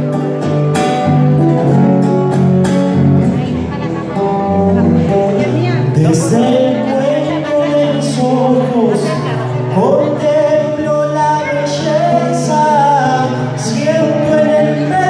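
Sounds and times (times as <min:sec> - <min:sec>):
acoustic guitar: 0:00.0 - 0:15.0
man singing: 0:04.9 - 0:15.0.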